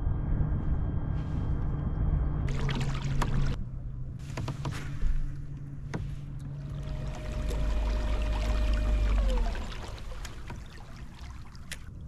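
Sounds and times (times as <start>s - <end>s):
steady low hum: 0.0s - 12.0s
water splashing against hull: 2.5s - 3.6s, 5.9s - 12.0s.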